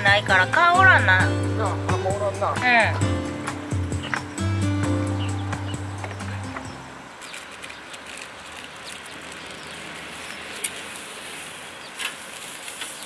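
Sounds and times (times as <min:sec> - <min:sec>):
background music: 0:00.0 - 0:07.1
outdoor background hiss: 0:00.0 - 0:13.0.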